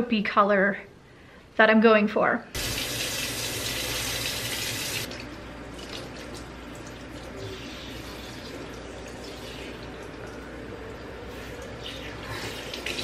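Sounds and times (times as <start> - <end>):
faucet water running into sink: 2.6 - 5.2, 5.8 - 10.4, 12.3 - 13.0.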